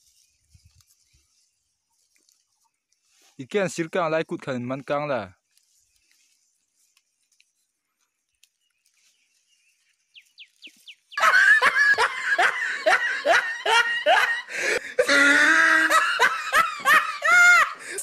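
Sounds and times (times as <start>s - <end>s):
hearty laughter: 11.2s - 18.0s
person giggling: 11.2s - 18.0s.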